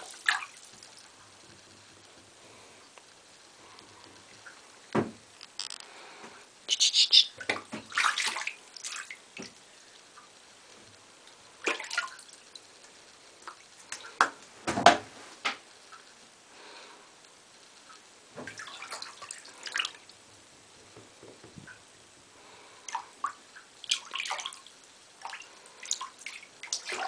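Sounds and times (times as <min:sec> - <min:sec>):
bathwater splashing: 0:00.0 - 0:01.7, 0:07.3 - 0:09.6, 0:11.5 - 0:12.7, 0:17.8 - 0:20.2, 0:22.8 - 0:27.0.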